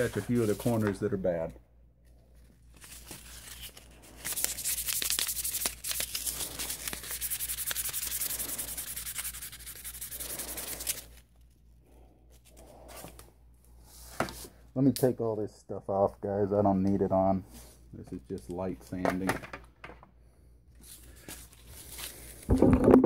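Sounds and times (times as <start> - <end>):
sandpaper rubbing wood: 4.3 - 11.1.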